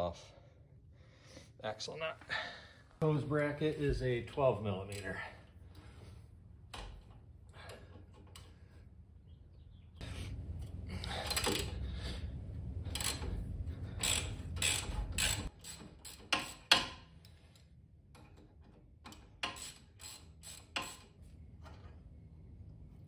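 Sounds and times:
socket ratchet clicking: 12.9s - 13.3s, 14.0s - 16.9s.

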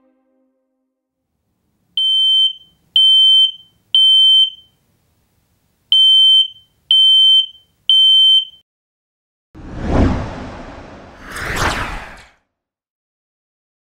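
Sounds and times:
smoke alarm beeping: 2.0s - 4.8s, 5.9s - 8.6s.

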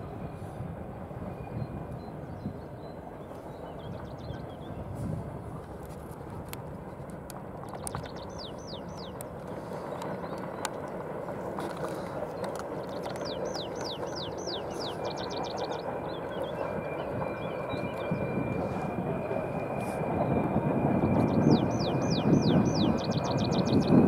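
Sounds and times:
distant freight train rumble: 0.0s - 24.0s.

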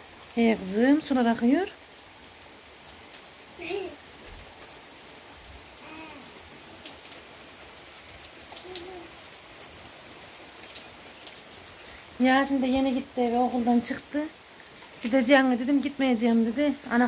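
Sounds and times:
steady rain: 0.0s - 17.0s.

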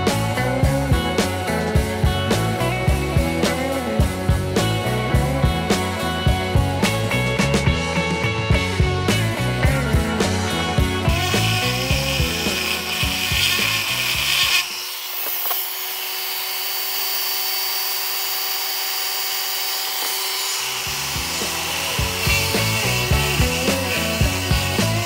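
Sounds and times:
rock music: 0.0s - 14.6s, 20.6s - 25.0s
rotary tool grinding stone: 10.0s - 25.0s.

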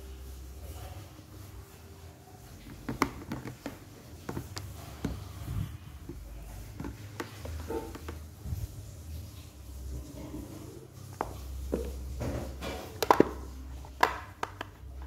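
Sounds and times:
plastic plug and cord handling: 13.0s - 14.9s.

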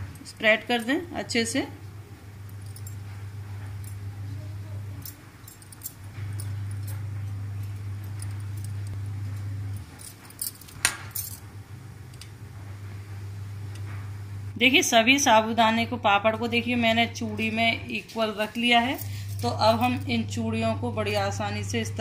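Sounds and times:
steady low hum: 0.0s - 22.0s
bangles jangling: 2.6s - 3.0s, 5.0s - 7.1s, 9.7s - 11.4s.

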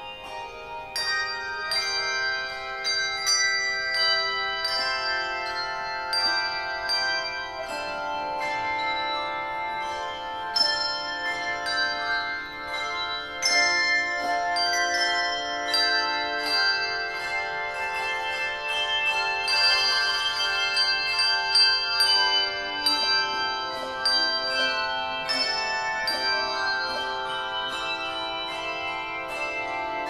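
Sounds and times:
handbell choir ringing chords: 0.0s - 30.0s.

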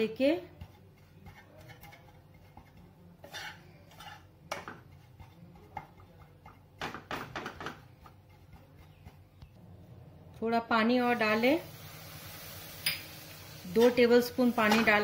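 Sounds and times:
spatula scraping a pan: 0.3s - 9.2s, 13.6s - 15.0s.

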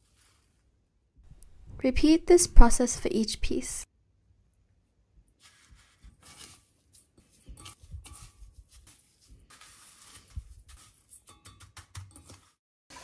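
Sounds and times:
breadcrumbs rustling in metal bowl: 0.0s - 0.8s, 5.3s - 13.0s.

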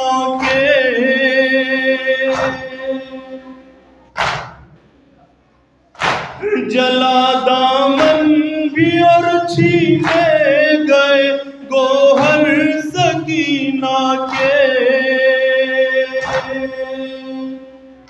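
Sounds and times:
man singing a lament: 0.0s - 3.7s, 6.4s - 18.0s
chest-beating slaps: 2.3s - 2.8s, 4.1s - 4.9s, 5.9s - 6.5s, 7.9s - 8.9s, 9.6s - 10.5s, 12.2s - 12.6s, 16.2s - 16.6s.

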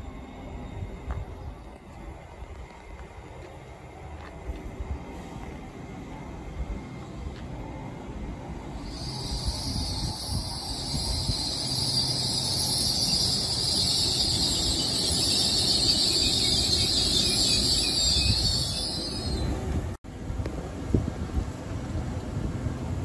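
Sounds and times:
train wheels rumbling: 0.0s - 23.0s
high-pitched brake hiss: 8.7s - 19.6s.

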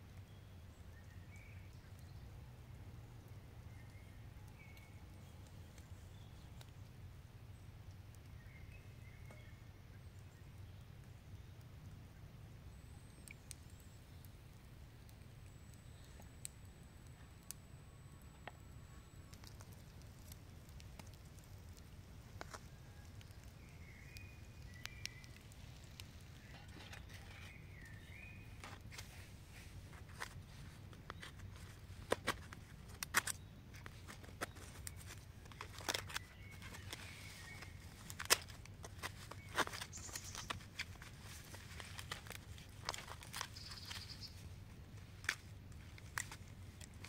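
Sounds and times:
foil packet taps and crinkles: 19.4s - 27.6s, 29.9s - 44.1s, 45.2s - 47.0s
bird chirps: 22.7s - 25.5s, 26.3s - 28.7s, 39.2s - 40.6s, 43.4s - 44.4s.

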